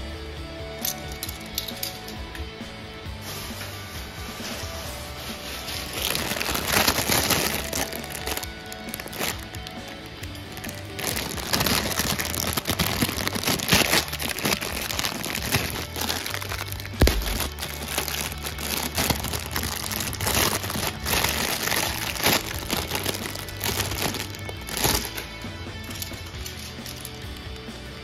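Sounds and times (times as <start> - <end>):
plastic bag crinkling: 5.5 - 27.4.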